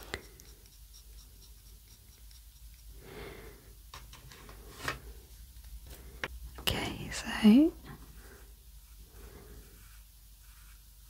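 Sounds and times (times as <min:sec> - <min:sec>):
pastel rubbing on paper: 0:00.0 - 0:02.9, 0:08.8 - 0:11.0.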